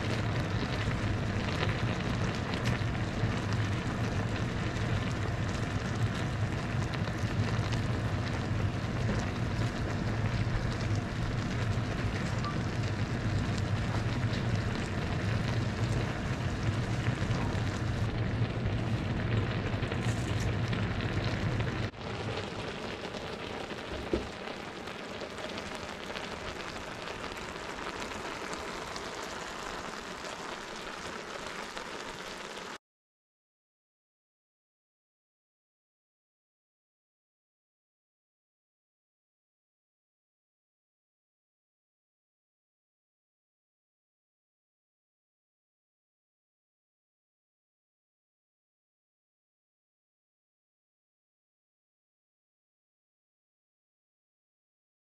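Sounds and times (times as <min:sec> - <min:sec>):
pasta simmering in a pan: 0:00.0 - 0:32.8.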